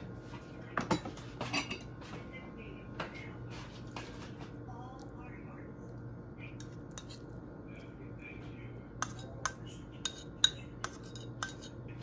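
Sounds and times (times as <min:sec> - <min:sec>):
metal utensil clinking on ceramic: 0:06.6 - 0:07.2, 0:09.0 - 0:11.8.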